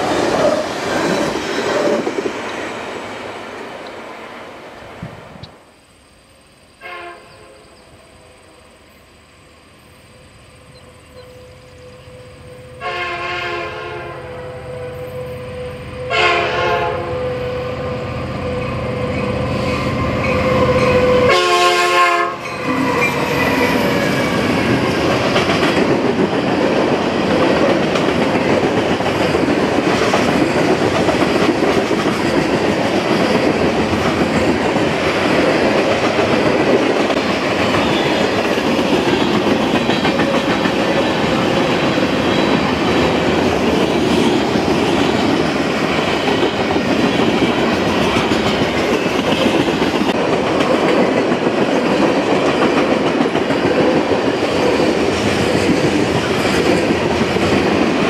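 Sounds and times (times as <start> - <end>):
train wheels rolling on rails: 0.0 - 58.0
train air horn chord: 6.8 - 8.3, 11.2 - 18.9, 21.0 - 22.4.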